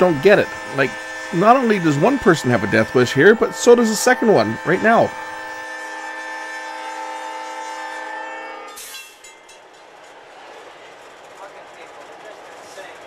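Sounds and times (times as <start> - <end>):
locomotive air horn chord: 0.0 - 8.9
train rolling along rails: 0.0 - 13.0.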